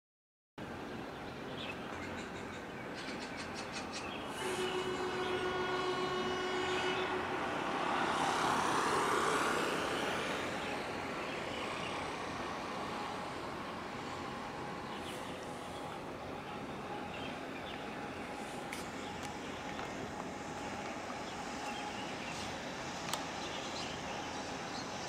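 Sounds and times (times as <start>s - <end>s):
horn blast: 4.3s - 8.8s.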